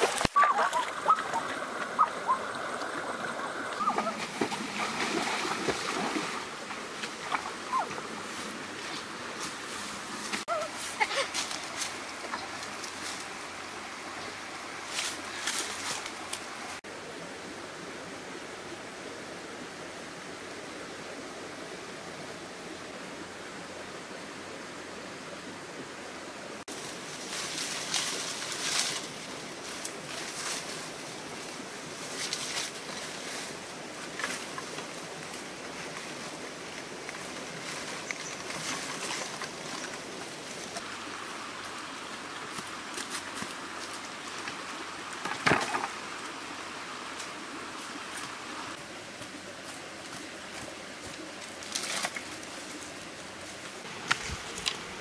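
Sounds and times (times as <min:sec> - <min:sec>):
stream flowing: 0:00.0 - 0:55.0
rustling of dry brush: 0:08.1 - 0:13.4, 0:26.7 - 0:40.9.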